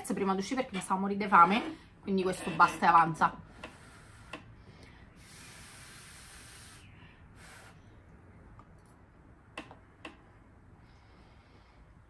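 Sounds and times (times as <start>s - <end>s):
breathing through the nose: 3.5s - 8.0s.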